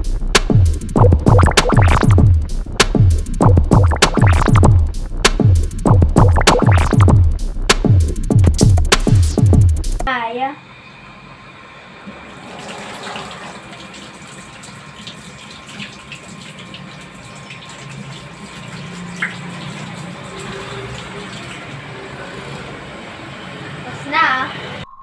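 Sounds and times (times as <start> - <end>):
tap water running into sink: 12.1 - 22.8
hands washing under water: 12.3 - 21.9.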